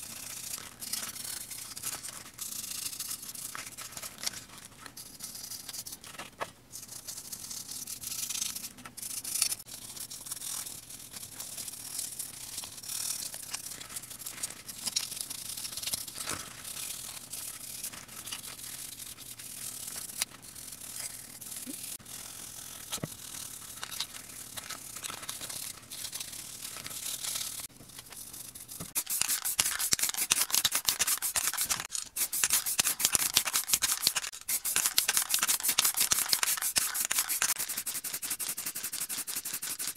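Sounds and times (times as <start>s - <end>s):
brush scrubbing in soapy water: 29.0s - 39.9s.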